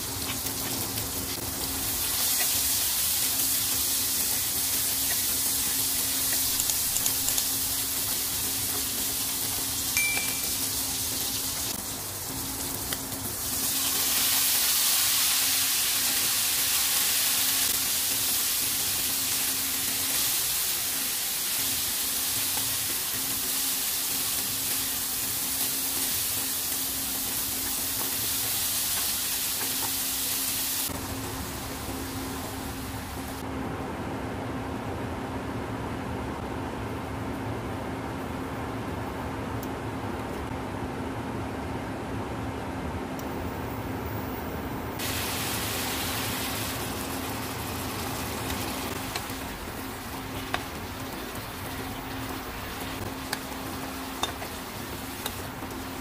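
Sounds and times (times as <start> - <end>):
broccoli sizzling in a pan: 0.0 - 30.9, 45.0 - 56.0.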